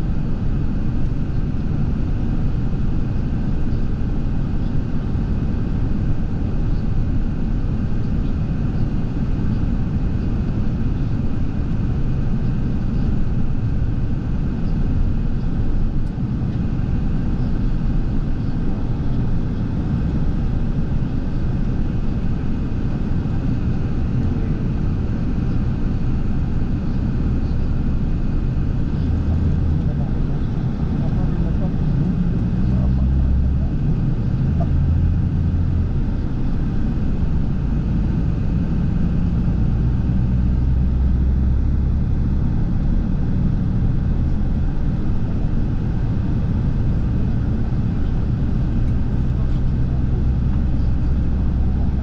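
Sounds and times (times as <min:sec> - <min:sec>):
vehicle engine rumble: 0:00.0 - 0:52.0.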